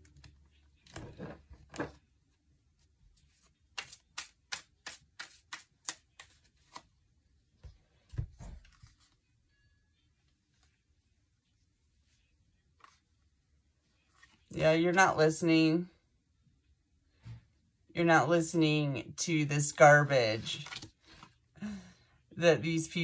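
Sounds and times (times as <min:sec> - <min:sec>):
cards snapping while shuffled: 0:03.7 - 0:06.9.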